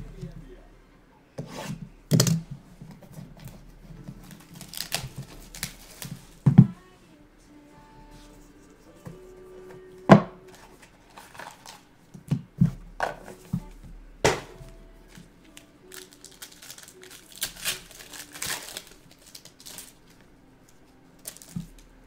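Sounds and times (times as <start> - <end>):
foil wrapper crinkling and tearing: 4.2 - 6.4, 11.0 - 11.9, 15.5 - 20.2, 21.2 - 21.9.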